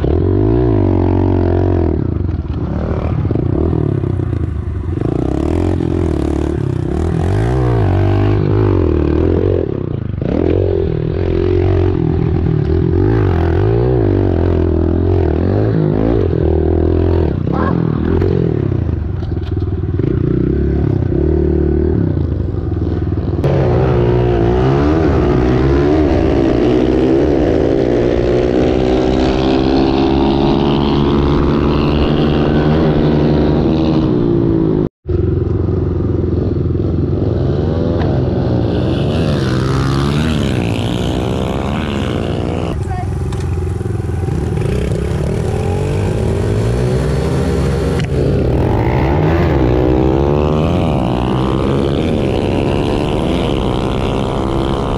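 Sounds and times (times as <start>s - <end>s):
pit bike engine revving: 19.9s - 54.9s.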